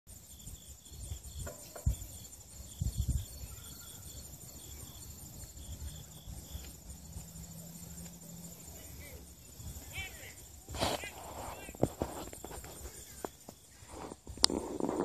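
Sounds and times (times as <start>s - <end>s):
insects chirping: 0.1s - 15.0s.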